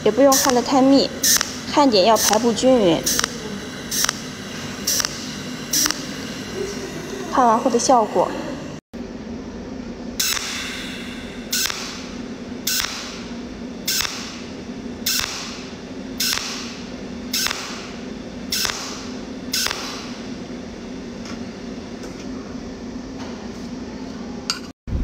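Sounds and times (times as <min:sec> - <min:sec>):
welding zaps: 0:00.0 - 0:06.8, 0:10.2 - 0:14.5, 0:15.1 - 0:20.2
welding machine hum: 0:00.0 - 0:23.2.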